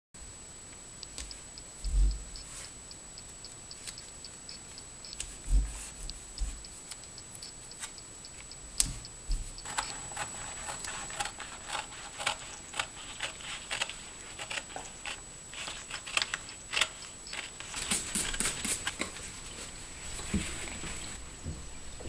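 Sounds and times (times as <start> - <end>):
scissors snipping paper: 5.1 - 19.2
paper rustling: 9.3 - 21.2.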